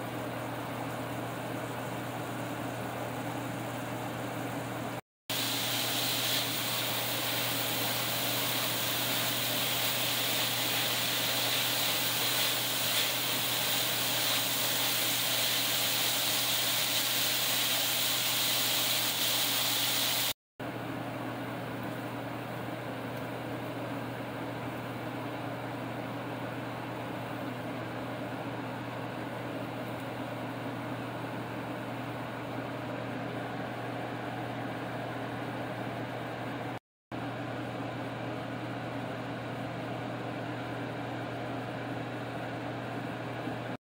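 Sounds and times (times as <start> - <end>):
meat sizzling in a skillet: 5.3 - 20.4.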